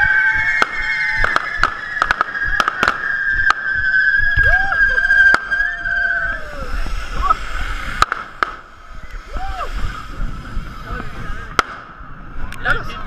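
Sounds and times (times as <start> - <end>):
spark fountains whistling: 0.0 - 12.0
firecracker cracks: 0.4 - 4.6, 5.2 - 5.7, 7.7 - 8.8, 11.5 - 12.0.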